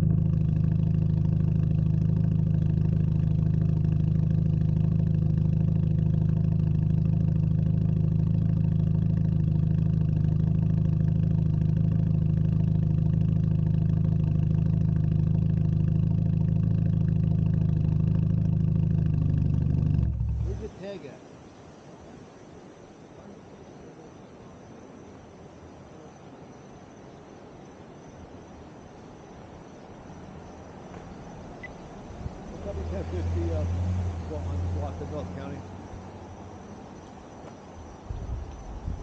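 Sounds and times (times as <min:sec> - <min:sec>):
car exhaust idling: 0:00.0 - 0:20.9, 0:30.0 - 0:39.0.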